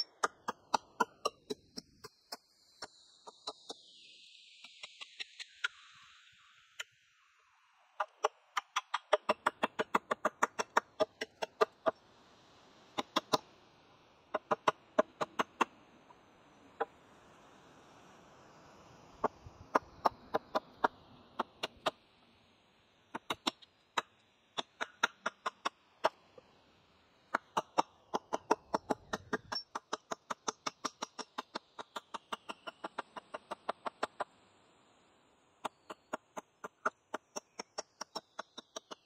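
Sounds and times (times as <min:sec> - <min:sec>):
hatchet chopping wood: 0:00.2 - 0:02.1, 0:08.0 - 0:11.8, 0:13.0 - 0:13.4, 0:23.2 - 0:25.6.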